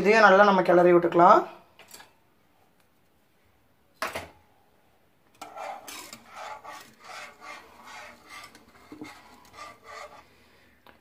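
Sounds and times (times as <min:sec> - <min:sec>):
spoon scraping pan: 0:05.3 - 0:10.4.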